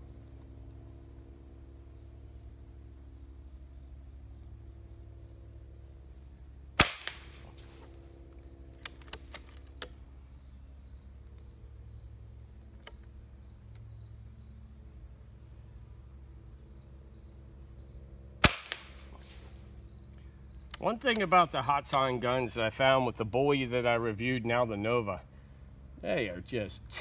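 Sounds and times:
high insect chirring: 0.0 - 27.0
air rifle shots: 6.8 - 7.6, 18.4 - 19.2.

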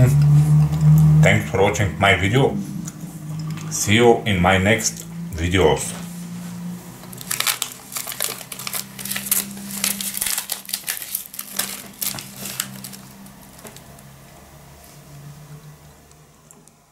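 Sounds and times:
plastic wrapper crinkling: 7.1 - 14.1.

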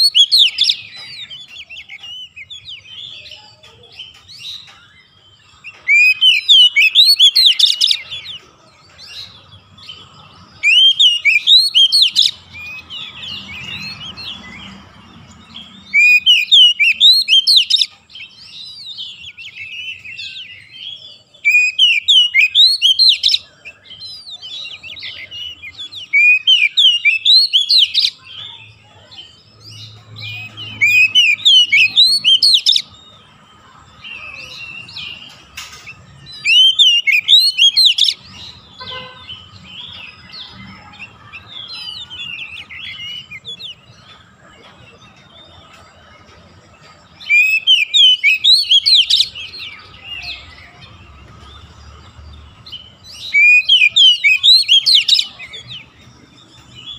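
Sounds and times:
bird whistling song bursts: 5.6 - 8.0, 10.6 - 14.7, 15.9 - 17.9, 21.4 - 23.4, 24.0 - 28.2, 30.3 - 32.9, 36.3 - 38.2, 47.2 - 50.5, 52.7 - 55.5.

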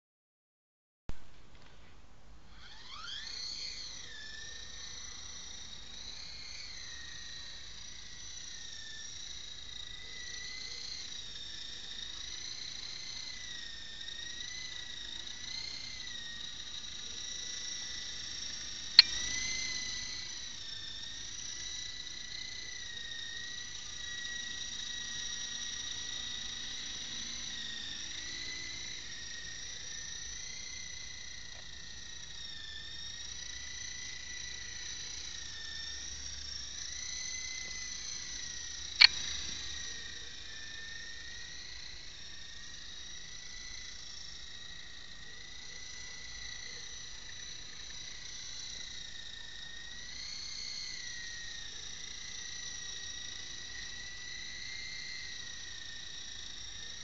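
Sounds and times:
model helicopter rotor whine: 2.5 - 57.0
sharp click: 19.0 - 19.2, 39.0 - 39.4.

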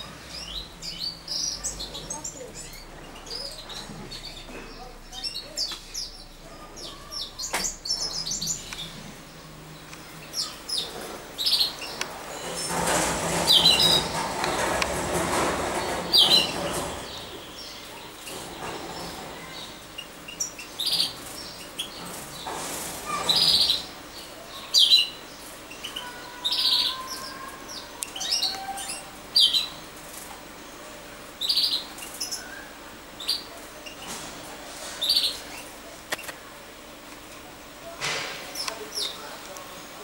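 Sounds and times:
finches chirping: 0.1 - 14.7.

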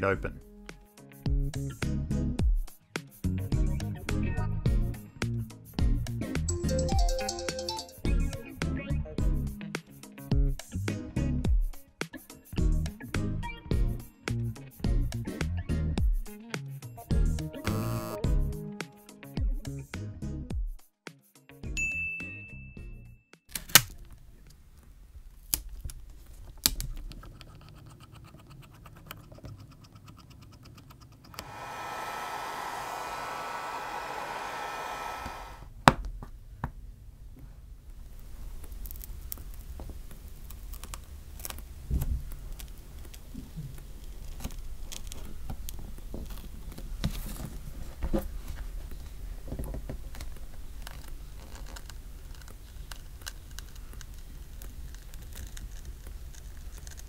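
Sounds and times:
tape being pulled and pressed: 23.5 - 24.0, 38.7 - 47.5, 50.0 - 57.0
steady rushing hiss: 31.4 - 35.6.

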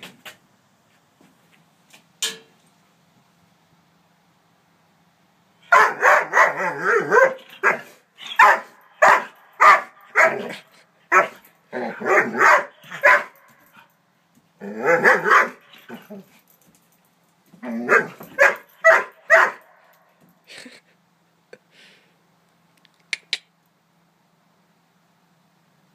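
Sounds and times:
dog barking: 5.7 - 13.4, 14.8 - 15.8, 17.8 - 19.8.

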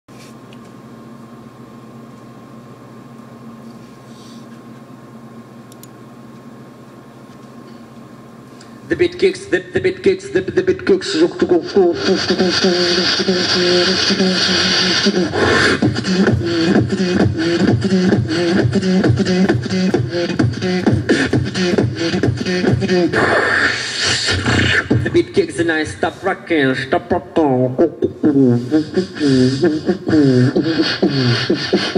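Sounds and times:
low electrical hum: 0.1 - 31.9
man beatboxing: 8.9 - 31.9
hissing mouth sound: 12.0 - 25.1, 28.2 - 31.9.

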